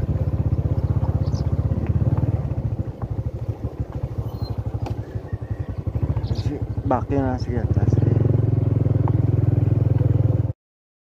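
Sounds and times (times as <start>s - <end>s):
small engine putter: 0.5s - 7.0s.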